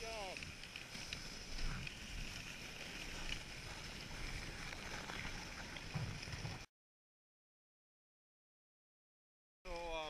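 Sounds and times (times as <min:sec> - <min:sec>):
sled runners hissing on snow: 0:00.2 - 0:06.6.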